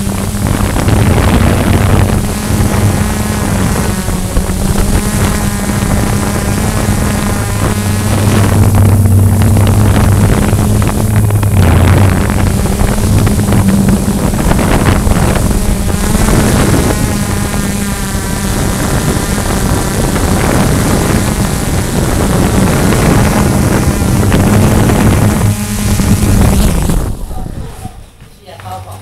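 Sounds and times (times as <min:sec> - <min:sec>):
drone propellers humming: 0:00.0 - 0:28.2
wind rushing over microphone: 0:00.0 - 0:28.2.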